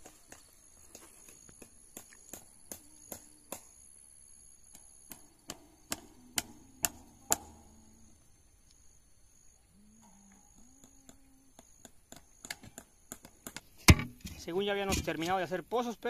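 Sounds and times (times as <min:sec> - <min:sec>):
hammer striking staples into wood: 0:12.4 - 0:14.3.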